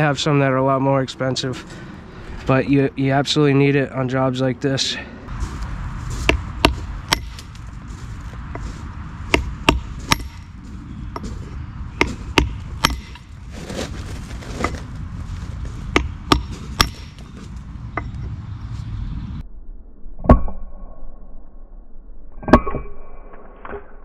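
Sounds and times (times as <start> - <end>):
hammer striking chisel on stone: 6.3 - 7.5, 9.3 - 10.5, 12.0 - 13.3, 15.9 - 17.2.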